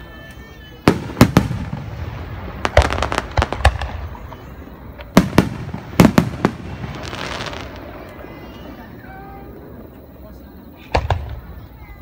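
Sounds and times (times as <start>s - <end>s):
firework crackling hiss: 0.3s - 9.8s
firework shells bursting: 0.9s - 8.2s.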